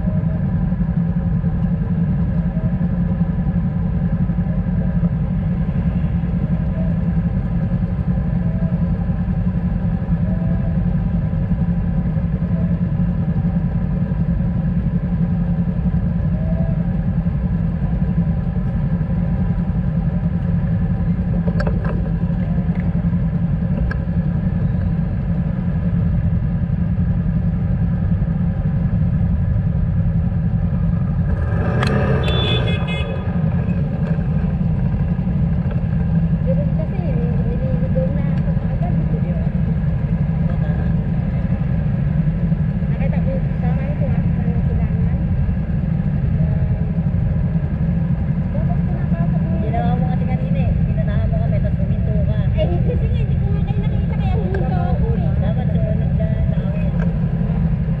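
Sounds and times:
motorcycle engines idling: 0:00.0 - 0:58.0.

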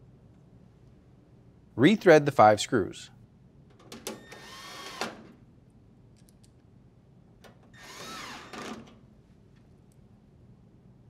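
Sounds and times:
drill driving screws into metal: 0:04.2 - 0:05.3, 0:07.7 - 0:08.9.

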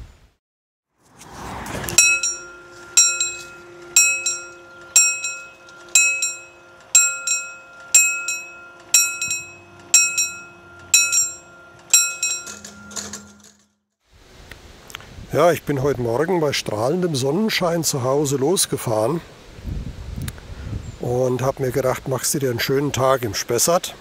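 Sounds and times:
short rising whoosh: 0:01.0 - 0:03.1
level crossing warning bell: 0:01.7 - 0:13.6.

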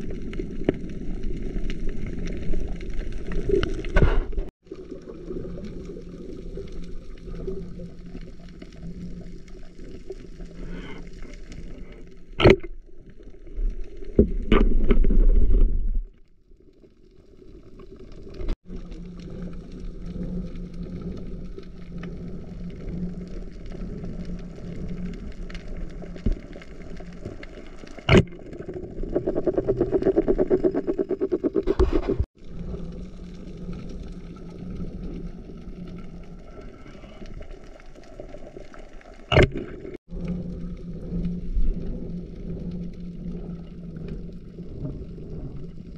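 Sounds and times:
steady low underwater hum: 0:00.0 - 0:45.9.

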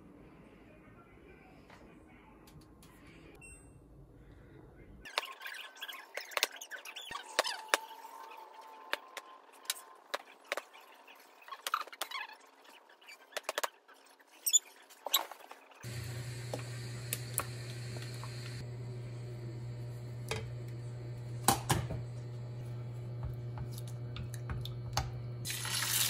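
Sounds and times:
steady low hum: 0:15.8 - 0:25.5.

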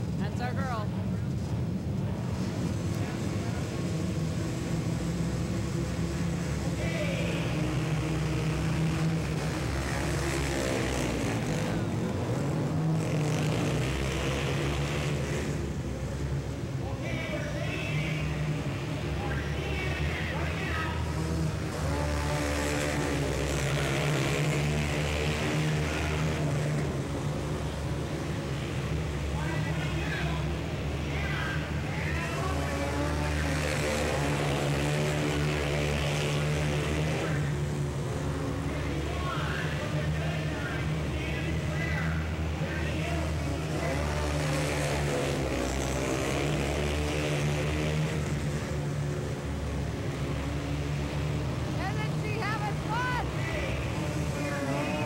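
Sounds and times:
racing atv engines droning: 0:00.0 - 0:55.0.

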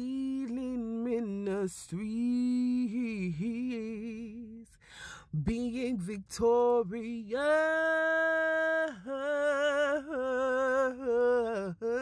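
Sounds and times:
person singing unaccompanied: 0:00.0 - 0:12.0.

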